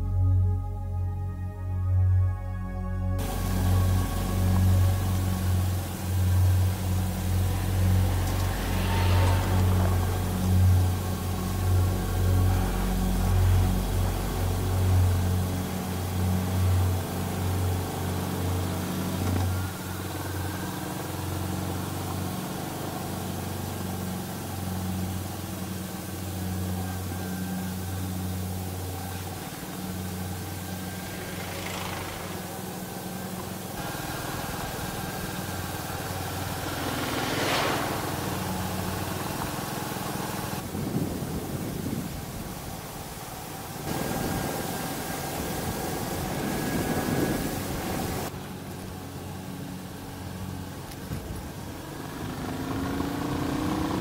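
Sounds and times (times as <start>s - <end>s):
wind noise: 3.2s - 20.5s, 33.8s - 48.4s
motorcycle engine running: 3.2s - 54.0s
brief rushes of noise: 7.1s - 11.6s, 33.8s - 39.6s.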